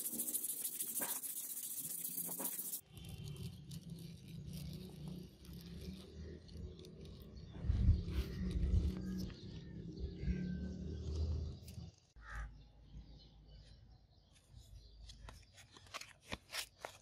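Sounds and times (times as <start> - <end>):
sandpaper strokes on steel: 0.0 - 2.8.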